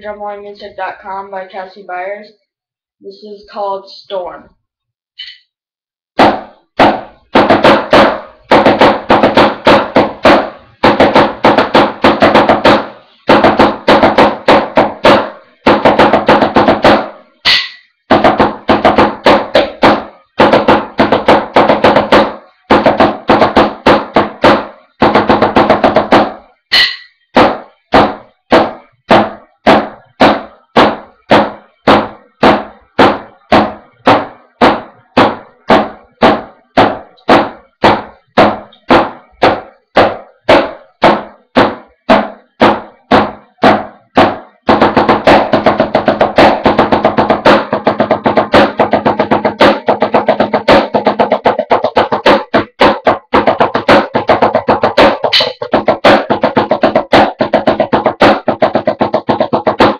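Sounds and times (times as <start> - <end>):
drumsticks on practice pad: 26.7 - 27.2, 55.3 - 55.6.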